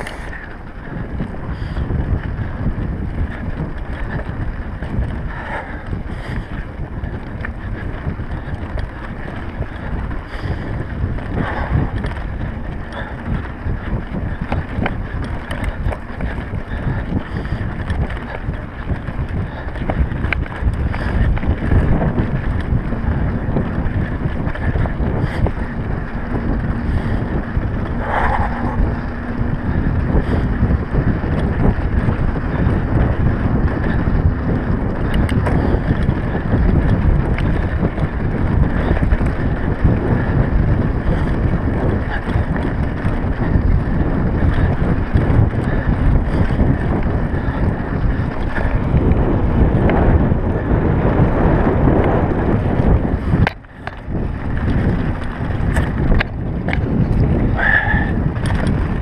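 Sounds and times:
bike rattling on dirt track: 0:00.0 - 0:59.0
wind buffeting microphone: 0:00.0 - 0:59.0.

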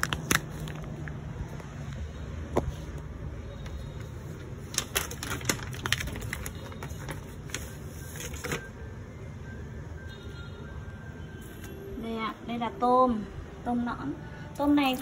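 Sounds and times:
plastic bag crinkling: 0:00.0 - 0:01.2, 0:04.6 - 0:08.7.

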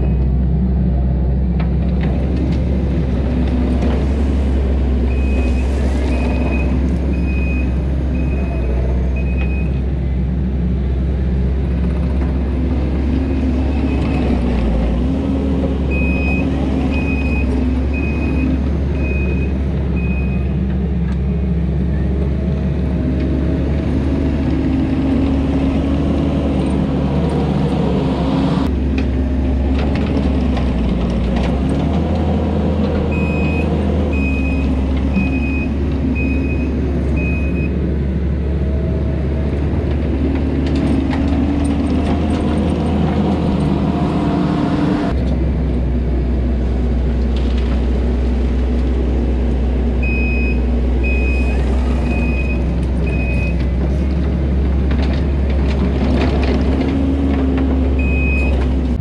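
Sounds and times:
diesel engine running under load: 0:00.0 - 0:59.0
backup alarm beeping: 0:33.1 - 0:37.7, 0:50.0 - 0:53.6.

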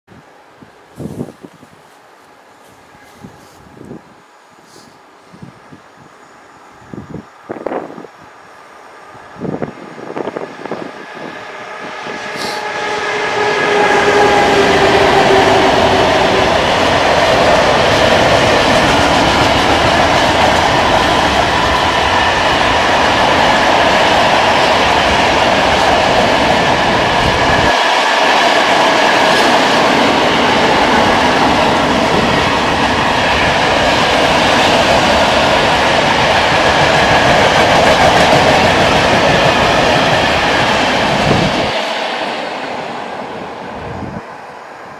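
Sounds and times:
electric locomotive whine: 0:00.1 - 0:44.9
train wheels rolling on rails: 0:09.0 - 0:44.9.

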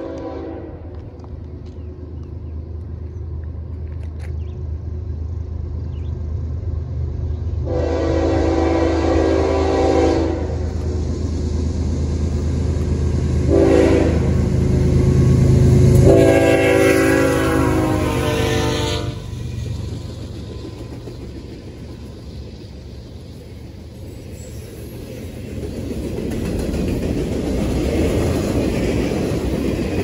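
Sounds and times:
train air horn blasts: 0:00.0 - 0:01.0, 0:07.6 - 0:10.7, 0:13.5 - 0:14.4, 0:15.9 - 0:19.4
diesel locomotive engine rumbling: 0:00.0 - 0:30.0.

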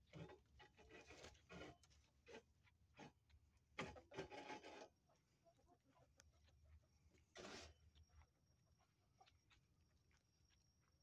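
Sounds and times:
rustling and scraping in dry dirt: 0:00.0 - 0:05.2, 0:07.1 - 0:08.3.

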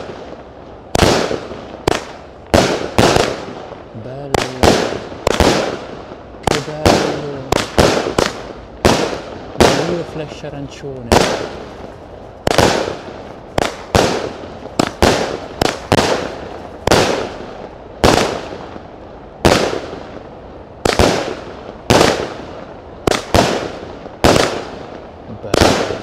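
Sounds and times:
firework cake bangs: 0:01.0 - 0:10.1, 0:11.0 - 0:18.8, 0:25.4 - 0:26.0.

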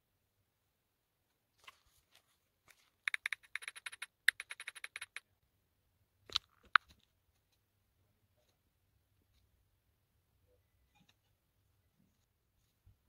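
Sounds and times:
phone keyboard clicks: 0:03.1 - 0:05.2.

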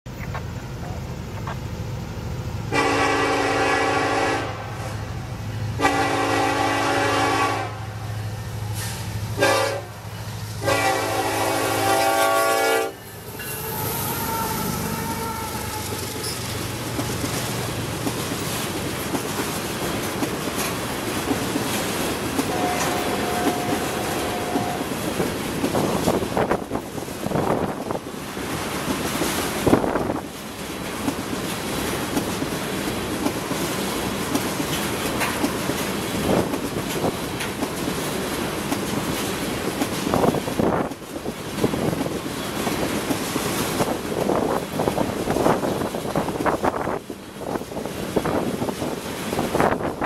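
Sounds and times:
locomotive engine hum: 0:00.1 - 0:50.0
train wheels rumbling on rail: 0:00.1 - 0:50.0
locomotive air horn blasts: 0:02.7 - 0:05.1, 0:05.8 - 0:08.2, 0:09.4 - 0:16.4, 0:22.4 - 0:25.0
wheels clicking over rail joints: 0:13.0 - 0:50.0.

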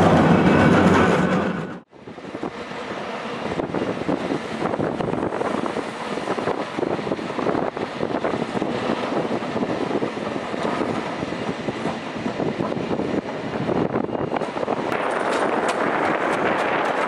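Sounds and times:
cable car rattling on tracks: 0:00.0 - 0:17.0.

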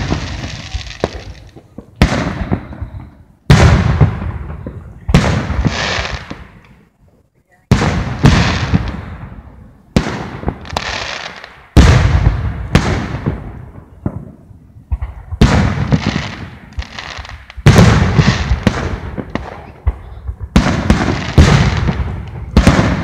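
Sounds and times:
firework booms: 0:00.0 - 0:06.8, 0:07.7 - 0:23.0
sharp firework cracks: 0:00.0 - 0:06.8, 0:07.7 - 0:23.0.

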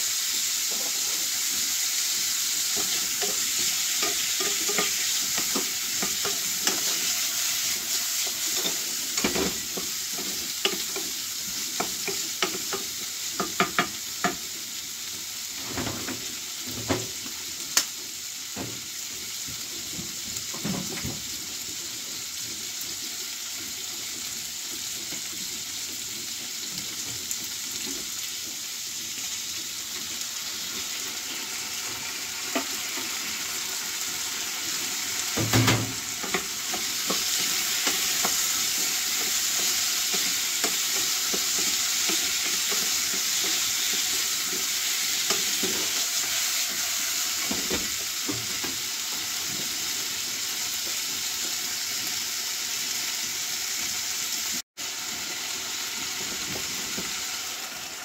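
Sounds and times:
vegetables sizzling in a frying pan: 0:00.0 - 0:58.0.

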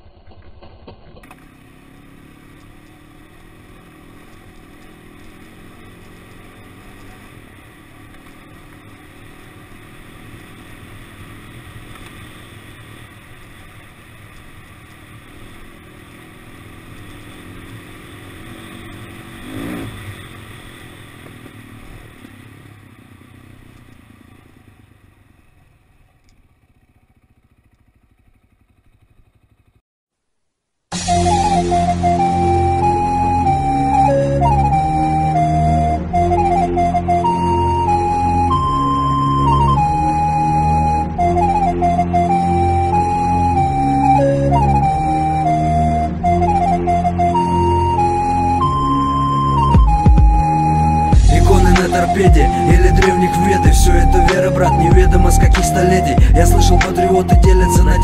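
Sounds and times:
motorcycle engine running: 0:00.0 - 0:29.8, 0:48.6 - 0:58.0.

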